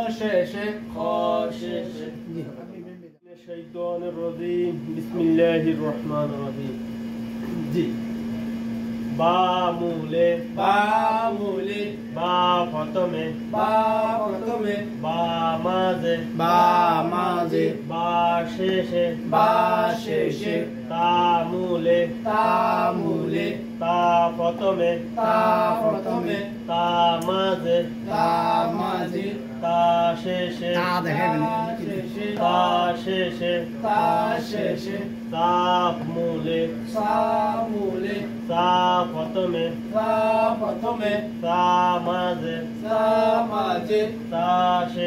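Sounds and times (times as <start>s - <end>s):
steady low hum: 0.0s - 45.0s
man chanting words: 9.2s - 44.1s.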